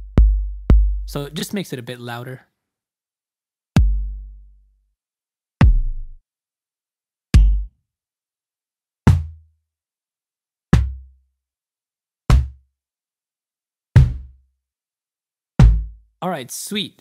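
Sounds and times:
synthesized kick drum thumps: 0.0 - 1.2, 3.8 - 4.2, 5.6 - 6.2, 7.4 - 7.7, 9.1 - 9.4, 12.3 - 12.6, 14.0 - 14.4, 15.6 - 16.0.

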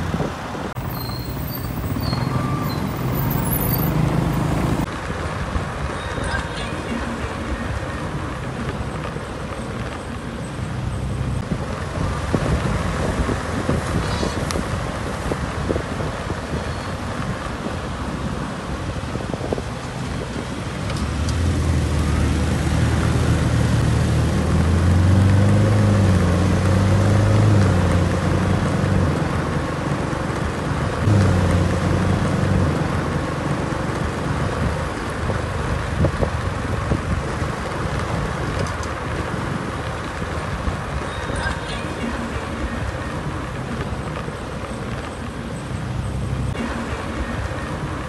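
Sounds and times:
sports car engine running hard: 0.0 - 5.2, 17.1 - 41.0
wind rush: 0.0 - 6.0, 11.4 - 26.8, 32.1 - 41.2
tyre road noise: 0.0 - 48.0.

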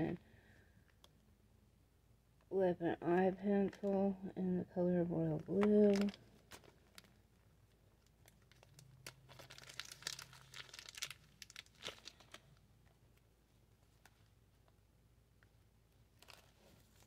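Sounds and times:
plastic sleeve crinkling and tearing: 5.4 - 12.6, 16.1 - 17.0.

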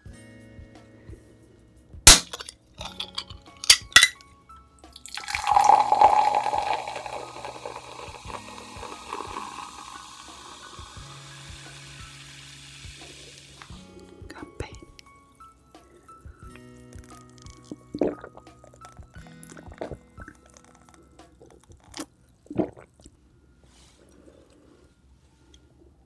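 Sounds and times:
soda pouring into glass: 5.0 - 13.8, 17.0 - 22.8.

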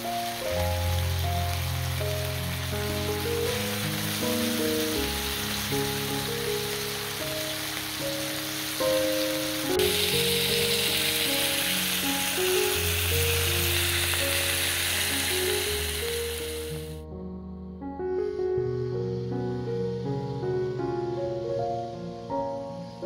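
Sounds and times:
food sizzling on grill pan: 0.0 - 17.0
background music: 0.0 - 23.0.

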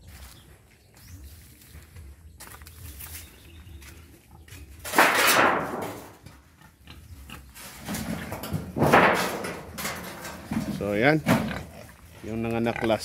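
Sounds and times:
pigs grunting: 6.2 - 8.8, 10.5 - 13.0.

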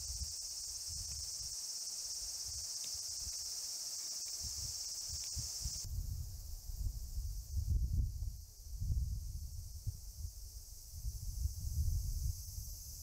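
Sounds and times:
insects droning: 0.0 - 13.0
wind rumble on microphone: 4.4 - 13.0.

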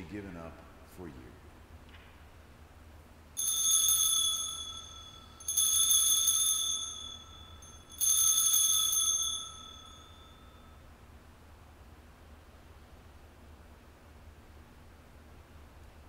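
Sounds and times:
altar bell ringing: 3.4 - 10.8.

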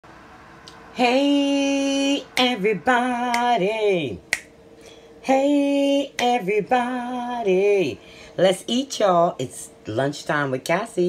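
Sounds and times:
finger snaps: 0.6 - 0.8, 2.4 - 2.6, 3.3 - 3.6, 4.3 - 4.6, 6.2 - 6.4
person singing: 0.7 - 4.4, 5.2 - 8.1.

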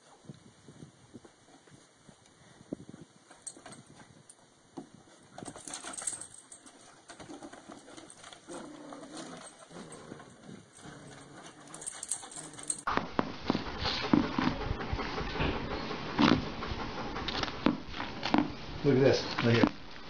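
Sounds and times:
paws scuffling on wooden boards: 4.8 - 19.8
dogs growling playfully: 5.5 - 18.3.

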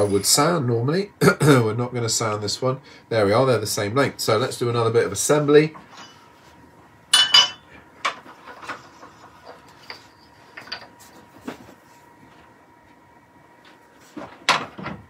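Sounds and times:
sharp ringing metal clink: 7.1 - 7.6.

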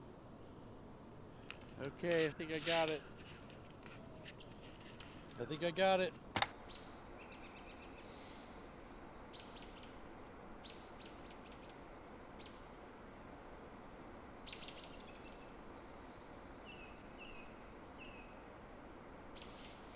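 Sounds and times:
steady hiss: 0.0 - 3.8, 4.4 - 19.9
small birds chirping: 6.5 - 19.9.

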